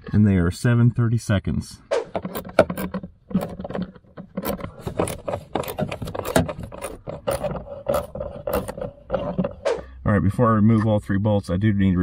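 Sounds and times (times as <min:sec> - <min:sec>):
ratchet clicking: 0:02.2 - 0:09.3.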